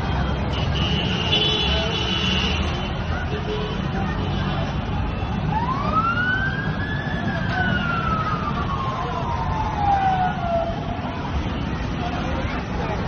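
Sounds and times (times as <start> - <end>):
low rumble of traffic: 0.0 - 13.0
emergency siren wailing: 5.4 - 11.2.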